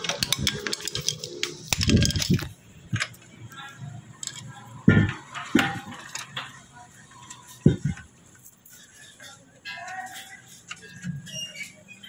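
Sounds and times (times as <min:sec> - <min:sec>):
metal parts clicking and clinking: 0:00.0 - 0:03.3, 0:04.1 - 0:08.1.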